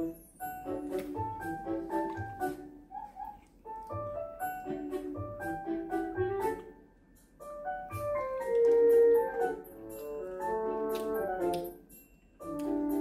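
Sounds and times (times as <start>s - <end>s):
light background melody: 0.0s - 13.0s.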